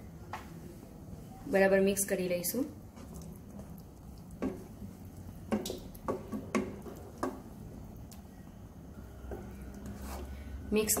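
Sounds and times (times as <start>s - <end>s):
wooden spatula stirring thick gravy: 2.7s - 11.0s.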